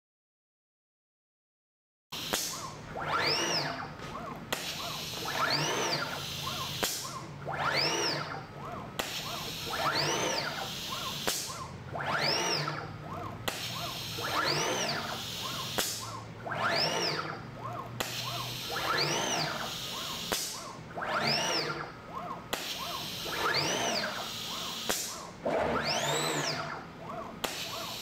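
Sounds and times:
sharp click: 0:02.2 - 0:02.7, 0:15.8 - 0:16.2, 0:17.8 - 0:18.4, 0:20.3 - 0:20.7
motors whining: 0:02.2 - 0:28.0.

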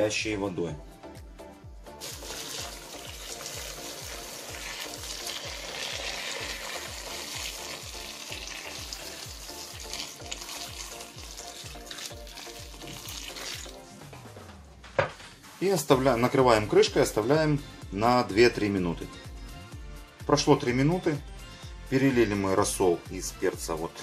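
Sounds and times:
background music with low beat: 0:00.0 - 0:24.0
water pouring into a pot: 0:02.0 - 0:13.8.

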